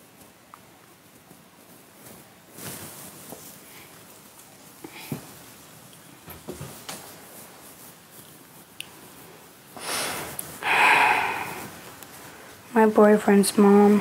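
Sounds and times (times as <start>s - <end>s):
person breathing into microphone: 9.8s - 11.9s.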